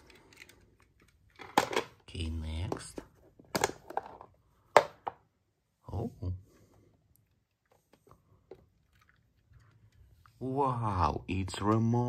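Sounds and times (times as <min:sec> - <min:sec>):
plastic tubs clicking and knocking: 0:00.0 - 0:05.3.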